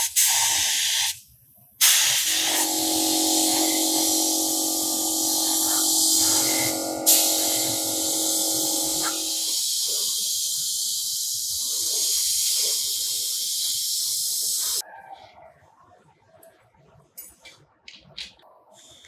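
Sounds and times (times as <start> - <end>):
machine hum: 2.2 - 9.5.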